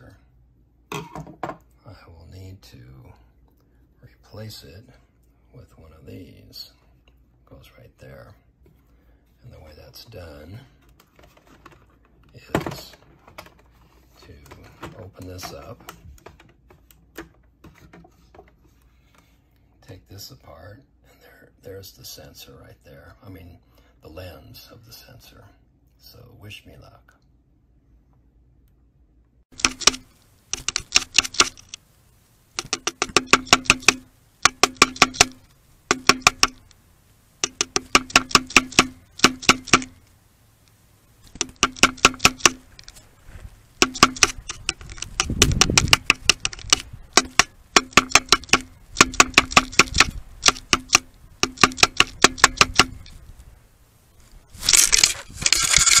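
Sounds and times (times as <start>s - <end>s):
woodpecker pecking plastic: 29.5s - 31.9s, 32.5s - 36.8s, 37.4s - 53.2s
rough rustling: 39.8s - 47.8s, 49.7s - 56.0s.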